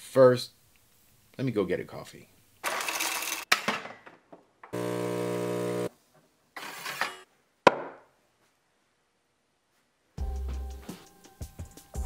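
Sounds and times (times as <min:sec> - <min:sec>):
espresso machine motor hum: 0:04.8 - 0:05.9
espresso machine rush of noise: 0:04.8 - 0:05.9.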